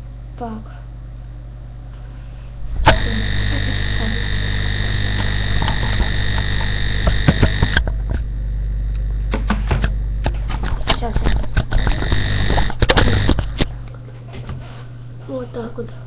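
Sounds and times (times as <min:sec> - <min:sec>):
electrical hum and buzz: 0:00.0 - 0:16.0
high whine: 0:02.5 - 0:13.8
clicks: 0:02.8 - 0:08.3, 0:10.6 - 0:13.7.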